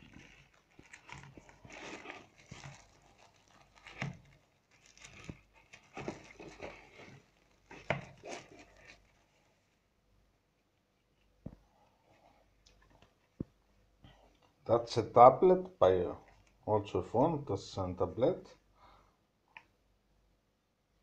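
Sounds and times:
plastic sleeve rustling: 0:00.0 - 0:09.9, 0:16.0 - 0:16.6.

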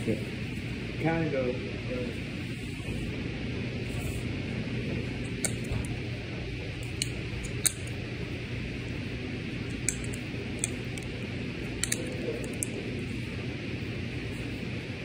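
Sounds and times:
low indoor room hum: 0:00.0 - 0:15.0
small sharp clicks: 0:11.8 - 0:12.8.

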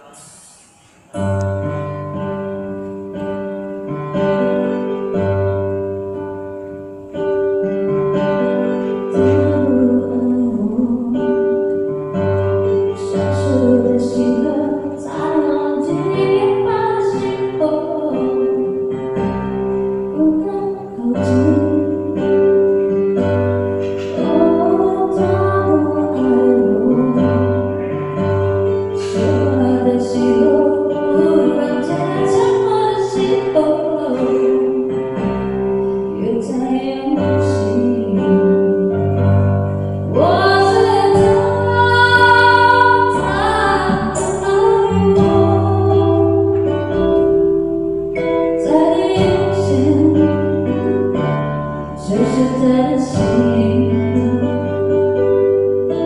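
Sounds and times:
plucked guitar: 0:01.1 - 0:56.0
person singing: 0:08.8 - 0:12.0, 0:12.7 - 0:18.9, 0:23.8 - 0:35.4, 0:40.1 - 0:47.3, 0:48.2 - 0:51.2, 0:52.0 - 0:55.0
bass: 0:09.1 - 0:56.0.

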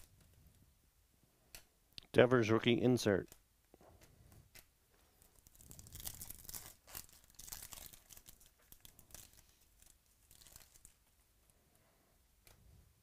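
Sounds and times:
foil wrapper tearing and crinkling: 0:05.2 - 0:11.1.

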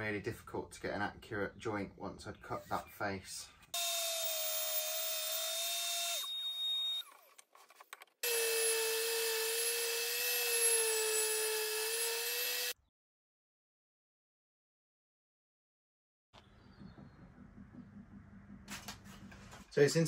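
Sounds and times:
table saw cutting wood: 0:03.7 - 0:07.1, 0:08.2 - 0:12.8.

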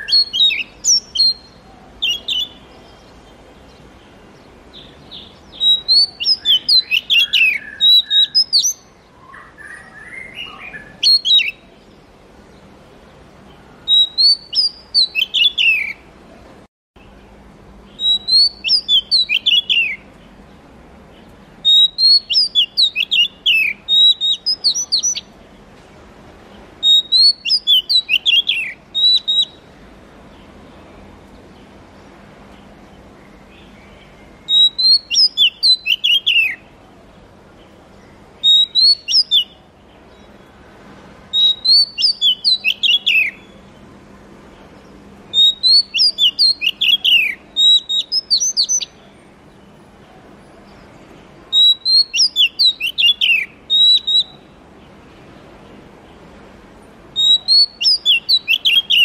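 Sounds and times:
bird singing whistled notes: 0:00.0 - 0:12.0, 0:13.5 - 0:16.1, 0:17.9 - 0:20.3, 0:21.2 - 0:25.4, 0:26.8 - 0:30.5, 0:33.5 - 0:36.7, 0:38.0 - 0:40.5, 0:41.3 - 0:43.7, 0:45.3 - 0:49.7, 0:51.5 - 0:54.6, 0:57.1 - 0:59.0.

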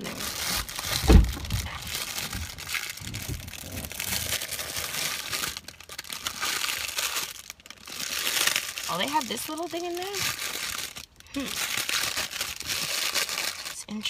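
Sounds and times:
crinkling and rustling on microphone: 0:00.0 - 0:14.0
heavy thump: 0:00.9 - 0:02.5.

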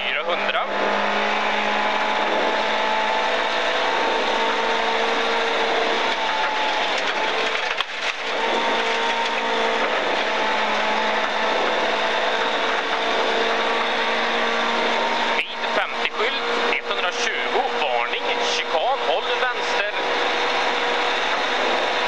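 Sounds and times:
car engine at high revs: 0:00.0 - 0:22.0
tyres on gravel: 0:06.0 - 0:11.4.

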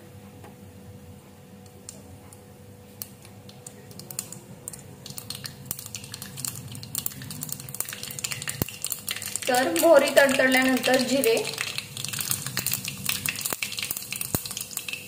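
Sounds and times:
seeds popping in hot oil: 0:03.0 - 0:15.0.

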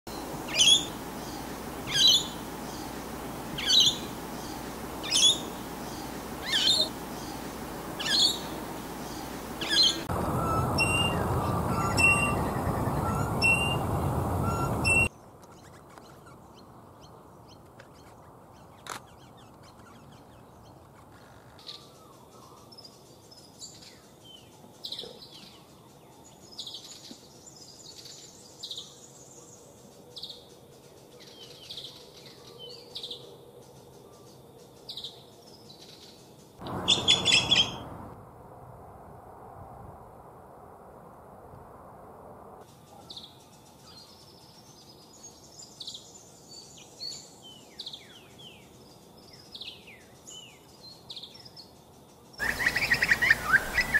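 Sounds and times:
loud steady rushing noise: 0:00.1 - 0:15.1
loud bird calls: 0:00.2 - 0:16.4, 0:36.6 - 0:38.0, 0:52.4 - 0:53.9
short bird chirps: 0:36.6 - 0:37.8.

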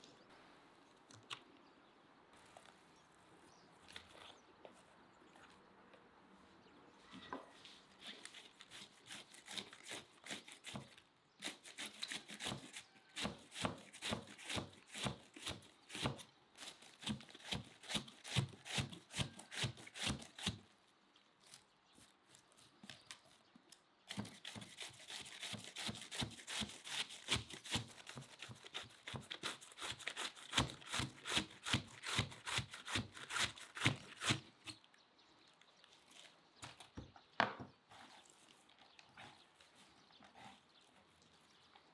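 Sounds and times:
shredder slicing cabbage: 0:08.8 - 0:20.6, 0:24.1 - 0:34.4.

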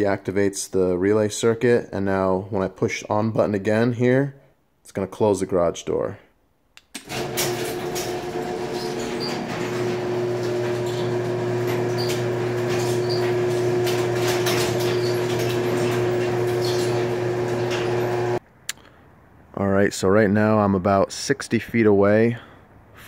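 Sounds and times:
garage door opener motor hum: 0:07.0 - 0:18.4
chain and door rattling: 0:07.1 - 0:10.1, 0:10.7 - 0:18.0.

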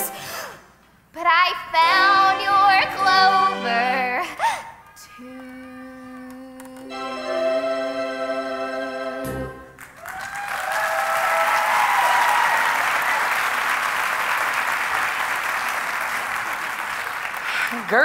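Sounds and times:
person singing with backing music: 0:05.0 - 0:09.6
audience applause and cheering: 0:09.7 - 0:18.0.

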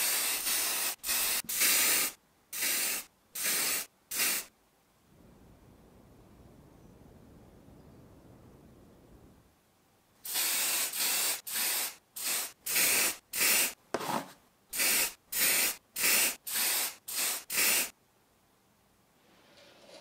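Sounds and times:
spray paint can hissing: 0:00.0 - 0:04.5, 0:10.2 - 0:13.8, 0:14.8 - 0:18.0.

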